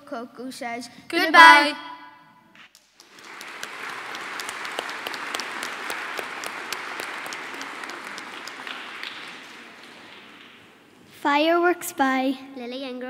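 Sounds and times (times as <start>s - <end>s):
audience applauding: 2.7s - 10.9s.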